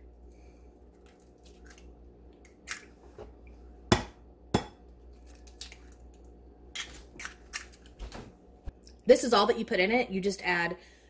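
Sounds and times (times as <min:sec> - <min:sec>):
eggshell clicks and crackles: 0:00.9 - 0:02.9, 0:05.1 - 0:07.9.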